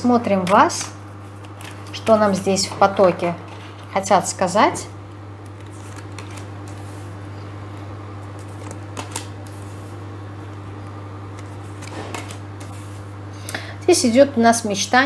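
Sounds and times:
cards snapping and sliding: 0:05.4 - 0:06.9, 0:08.3 - 0:09.7, 0:11.3 - 0:12.9.

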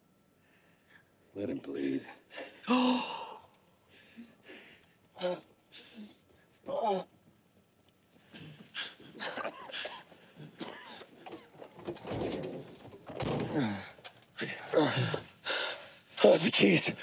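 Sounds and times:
breathless gasps and grunts: 0:13.5 - 0:15.9.

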